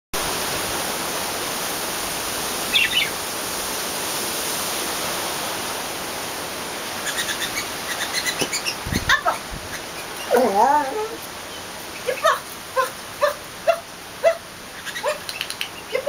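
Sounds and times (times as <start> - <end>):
outdoor noise hiss: 0.2 - 16.0
bird chirps: 14.8 - 16.0.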